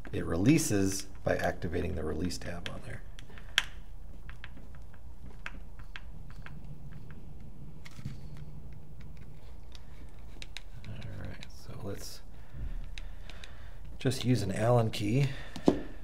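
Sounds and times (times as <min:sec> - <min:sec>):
faint steady hum: 0:00.0 - 0:16.0
plastic parts clicking: 0:07.8 - 0:11.8.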